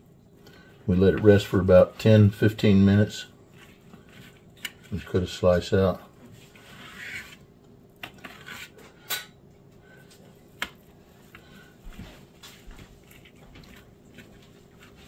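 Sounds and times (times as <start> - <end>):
knife scraping through meatloaf: 3.5 - 5.2, 6.4 - 7.5, 8.1 - 9.0, 13.0 - 15.0.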